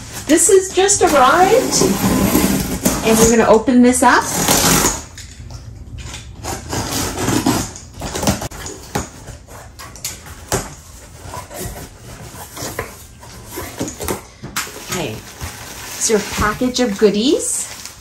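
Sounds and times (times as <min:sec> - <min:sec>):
cardboard scraping and rustling: 0:00.0 - 0:03.6, 0:06.4 - 0:18.0
box cutter slitting tape: 0:04.3 - 0:05.2, 0:06.4 - 0:09.2.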